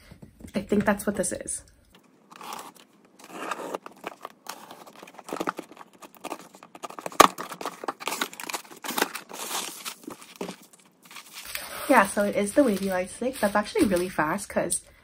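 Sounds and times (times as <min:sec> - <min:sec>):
packing tape tearing: 0:02.3 - 0:11.7.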